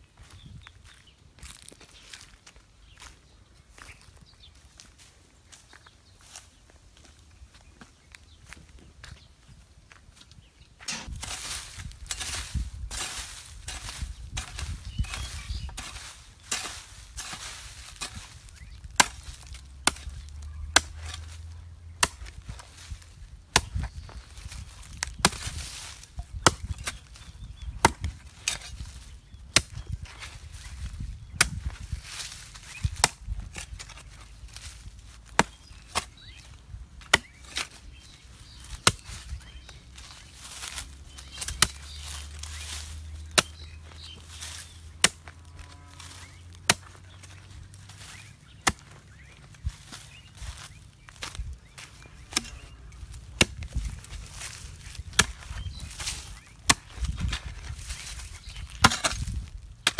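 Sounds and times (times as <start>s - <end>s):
metal blade chopping hard soil: 10.8s - 30.3s, 31.3s - 39.4s, 40.0s - 45.3s, 46.1s - 47.4s, 51.2s - 59.9s.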